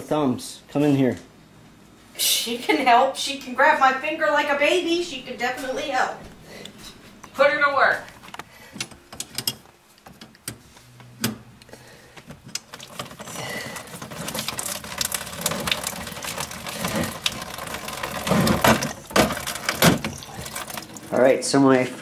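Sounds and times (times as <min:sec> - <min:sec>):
clicks rattles and knocks: 0:12.3 - 0:21.1.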